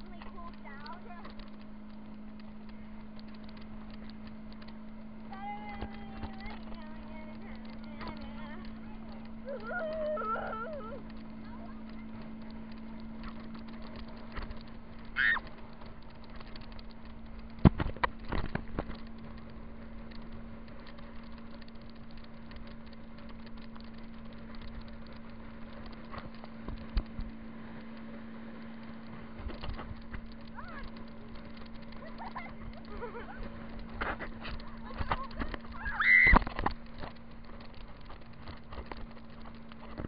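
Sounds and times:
steady low hum: 0.0 - 40.0
muffled rushing and bumping: 10.7 - 40.0.

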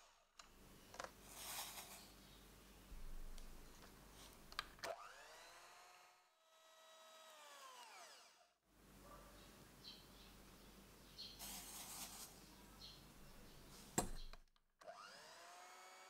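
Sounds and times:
electric hand mixer whining: 4.9 - 8.4, 14.8 - 16.0.

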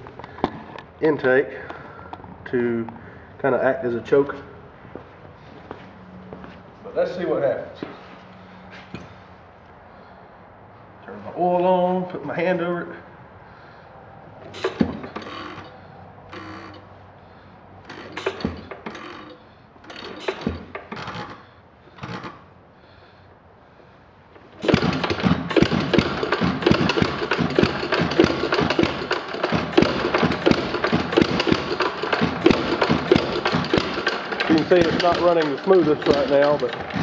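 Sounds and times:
engine being spun over: 14.4 - 16.8, 17.8 - 21.4, 24.4 - 37.0
engine running with rapid firing: 24.6 - 37.0.

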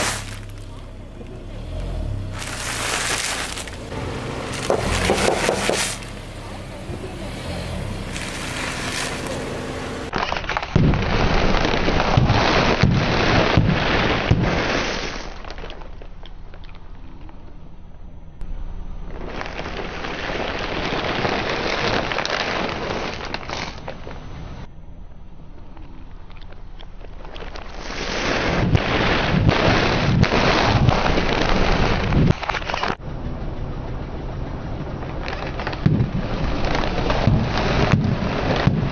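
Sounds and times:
tyre crunching snacks: 0.0 - 0.7, 2.2 - 3.9
snack bags bursting: 0.0 - 0.8, 2.2 - 3.9, 4.5 - 6.2, 8.1 - 9.4
crisp packets crunching under tyre: 0.0 - 1.4, 2.2 - 6.2, 8.1 - 10.8
plastic bags crinkling: 2.4 - 3.9.

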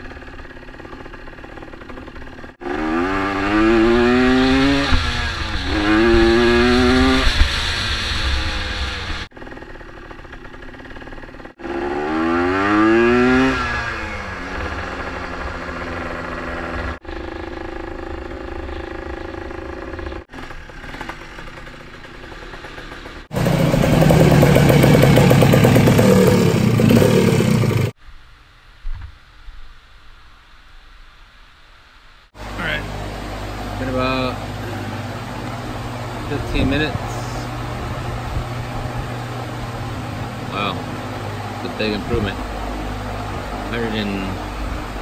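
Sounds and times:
atv engine revving: 0.0 - 28.0, 32.4 - 45.0.

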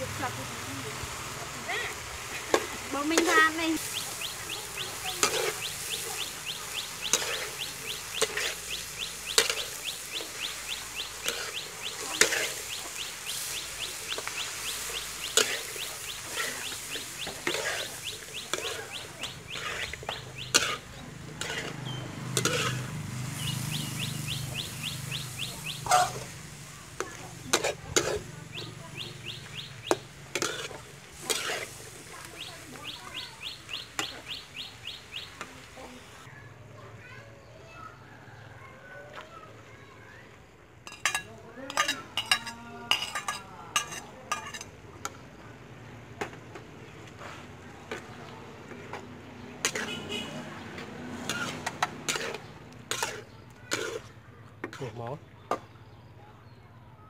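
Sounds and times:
light sizzle: 0.0 - 36.3, 39.2 - 54.9
metal spatula scraping a wok: 2.1 - 32.9, 40.9 - 44.8, 49.6 - 54.9
fast chirping trill: 21.4 - 26.3.

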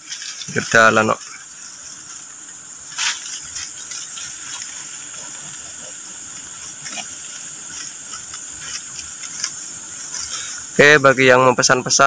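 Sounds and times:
insects hissing: 0.0 - 12.0.

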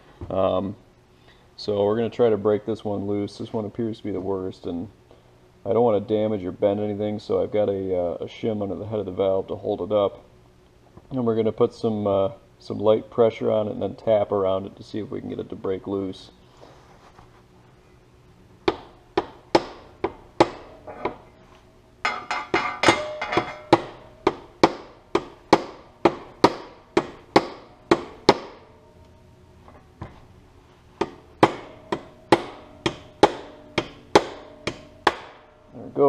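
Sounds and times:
hammer tapping on metal: 22.0 - 28.7, 31.0 - 35.4.

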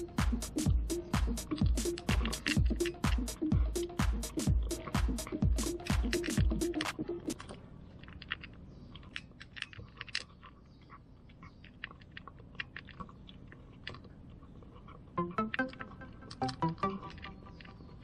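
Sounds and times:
background music: 0.0 - 7.4, 15.2 - 17.8
cat chewing food: 0.0 - 18.0.

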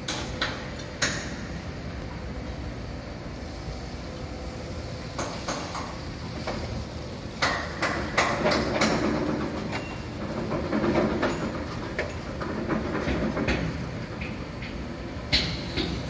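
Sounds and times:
low construction rumble: 0.0 - 16.0
sharp metallic knocks: 7.4 - 9.8.

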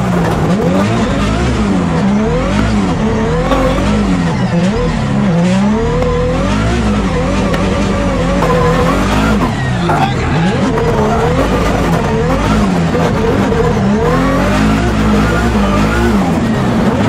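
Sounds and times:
car engine revving: 0.0 - 17.0
tyres squealing: 2.3 - 5.4, 6.5 - 12.8.

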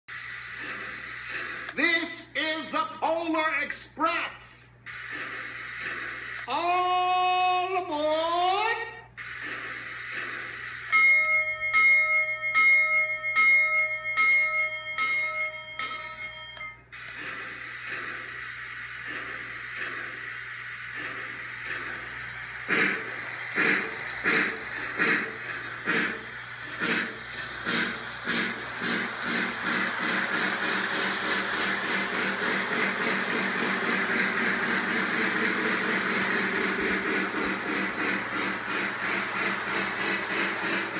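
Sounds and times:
soft rhythmic steam chuffing: 0.1 - 40.9
electronic bell ringing: 10.9 - 16.9
model train clattering on track: 20.9 - 40.9.

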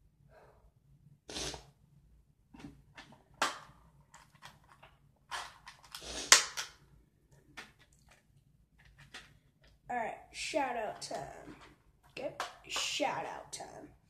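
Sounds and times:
small objects snapping and clicking: 3.0 - 6.8.

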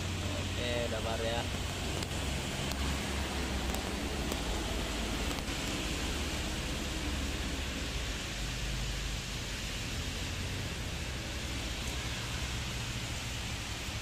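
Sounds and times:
bus engine rumble: 0.0 - 14.0
rain hissing: 0.0 - 14.0.

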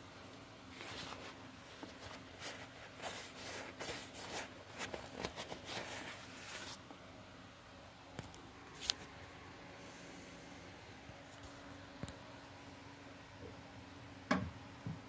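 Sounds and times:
rain jacket rustling: 0.7 - 6.8.

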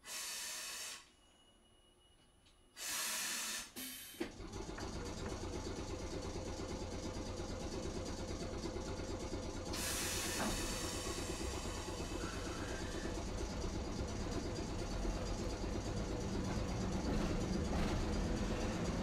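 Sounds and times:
compressed air hiss: 0.0 - 1.2, 2.8 - 4.2, 9.7 - 11.7
tram running noise: 4.2 - 19.0
tram clunk: 9.7 - 19.0.

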